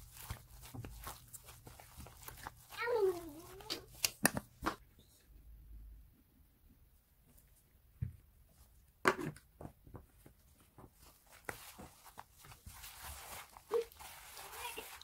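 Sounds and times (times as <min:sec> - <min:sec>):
glove rustling and squishing: 0:00.0 - 0:04.8, 0:10.2 - 0:15.0.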